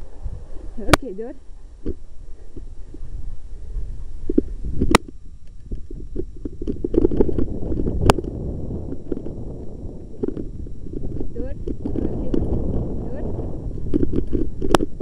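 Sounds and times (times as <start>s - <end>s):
bike rattles: 4.3s - 12.5s, 13.7s - 15.0s
bike tyres rumbling on dirt: 5.8s - 15.0s.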